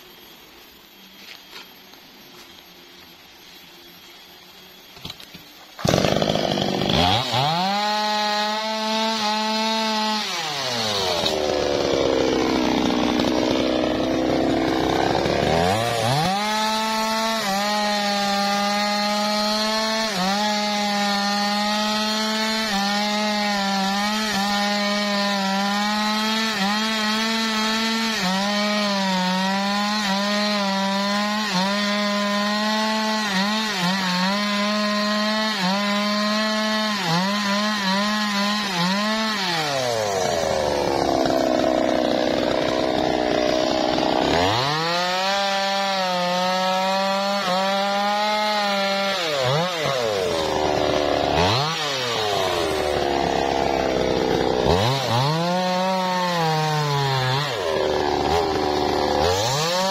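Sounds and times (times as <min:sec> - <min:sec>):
chainsaw cutting log: 0:04.9 - 0:59.9.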